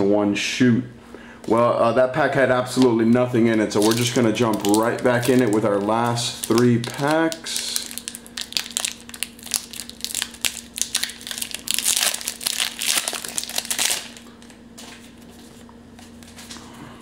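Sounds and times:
faint steady hum: 0.0s - 17.0s
foil wrapper crinkling and tearing: 3.6s - 14.6s.

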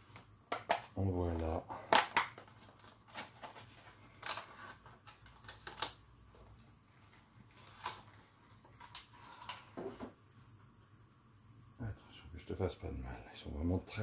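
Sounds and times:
thin plastic box clicking and crackling: 2.0s - 6.0s.

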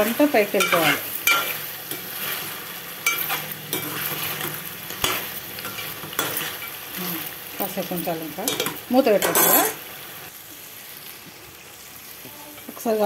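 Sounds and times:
frying sizzle: 0.0s - 13.0s
spoon scraping metal pot: 8.5s - 9.8s.

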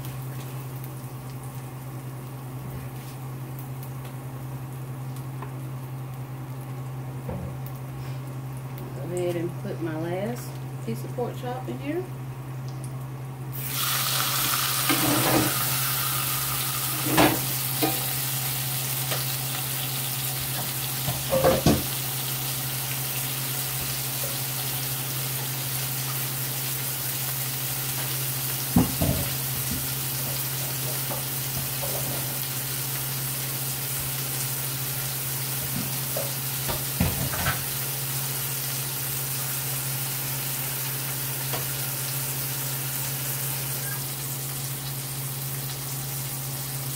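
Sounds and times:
meat sizzling in a skillet: 13.5s - 46.9s.

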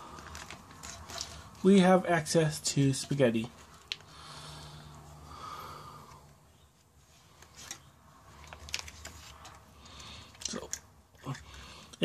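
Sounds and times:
foil pouch rustling and crinkling: 8.4s - 9.5s.

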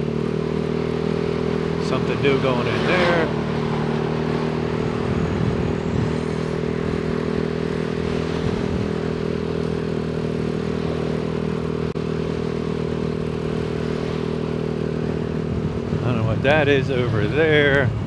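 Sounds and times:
road noise: 0.0s - 18.0s
scooter engine cruising: 0.0s - 18.0s
wind rushing: 4.5s - 9.0s.

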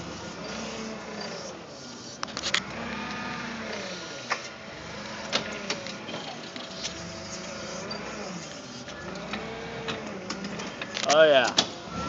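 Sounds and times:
forklift motors whining: 0.0s - 12.0s.

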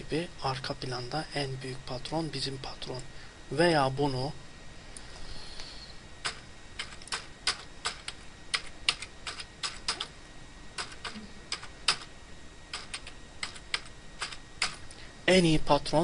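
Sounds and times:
typing on computer keyboard: 6.2s - 10.1s, 10.8s - 12.1s, 12.7s - 14.8s.

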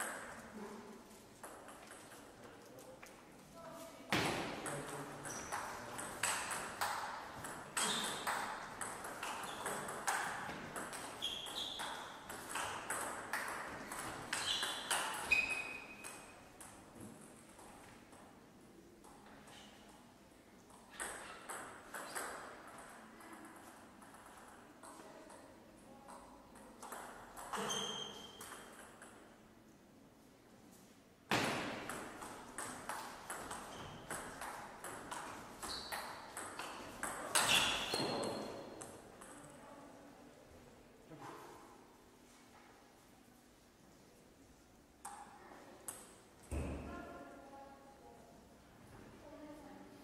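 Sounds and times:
ball bouncing: 4.1s - 17.7s, 20.7s - 25.0s, 31.3s - 39.4s.

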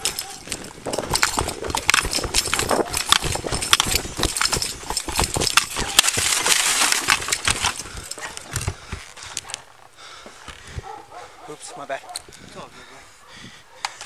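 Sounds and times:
gear rattling: 0.0s - 9.7s
running footsteps on dirt: 0.0s - 14.0s.

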